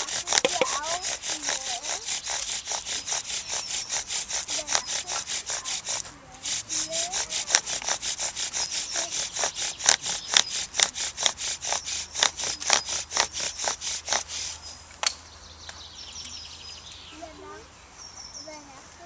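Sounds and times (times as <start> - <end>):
bow drill spindle rasping and squeaking: 0.0 - 14.7.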